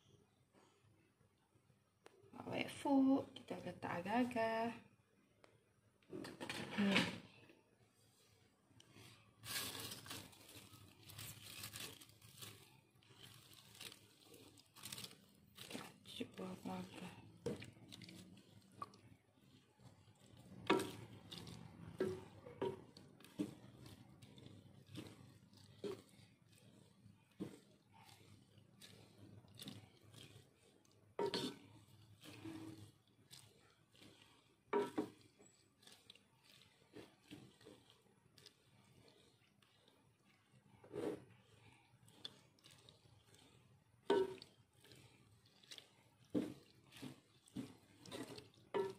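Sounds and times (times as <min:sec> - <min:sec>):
spatula stirring chicken in pot: 0:02.1 - 0:04.7, 0:06.0 - 0:48.9
cat chewing food: 0:12.4 - 0:16.0, 0:17.3 - 0:48.9.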